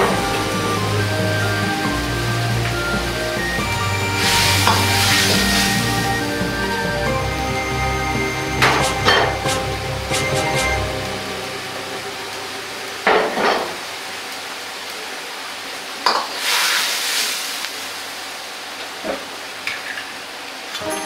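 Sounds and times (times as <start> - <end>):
tofu sizzling: 0.1 - 10.1, 16.1 - 17.9.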